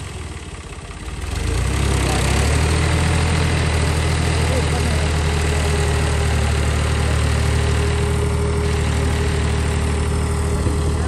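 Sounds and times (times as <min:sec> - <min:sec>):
tractor diesel engine droning: 0:00.0 - 0:11.0.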